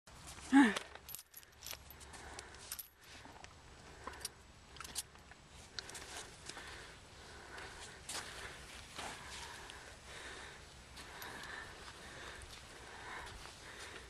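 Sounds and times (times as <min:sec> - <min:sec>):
bridle rings clinking: 0:00.8 - 0:03.1.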